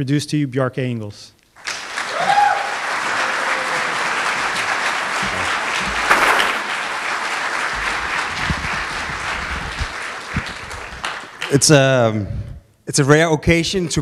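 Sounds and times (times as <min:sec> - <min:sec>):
audience applauding: 0:01.6 - 0:12.0.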